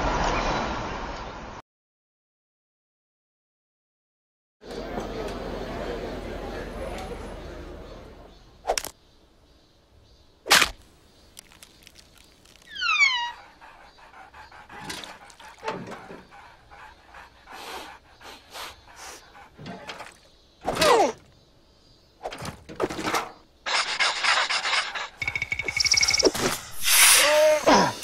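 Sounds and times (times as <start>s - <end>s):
cartoon character squeaks and grunts: 12.8s - 13.4s.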